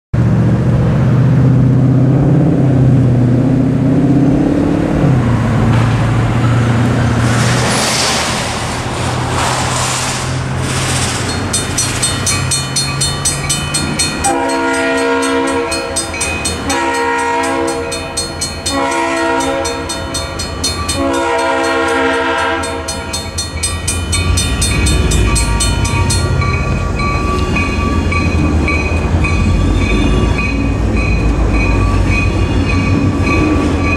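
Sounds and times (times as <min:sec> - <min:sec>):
mechanical crossing bell: 0:11.3 - 0:22.0, 0:22.6 - 0:33.9
locomotive horn blasts: 0:14.2 - 0:23.2.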